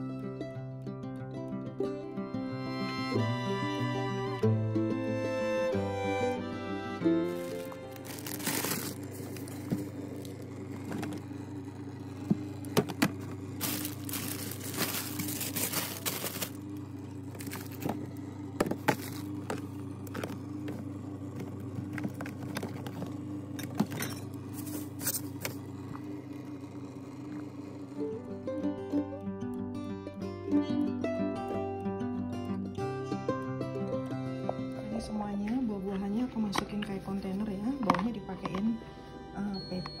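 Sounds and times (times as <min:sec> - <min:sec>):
refrigerator low hum: 0:00.0 - 0:40.0
plastic containers scraping and clicking: 0:07.3 - 0:11.3, 0:12.2 - 0:25.6.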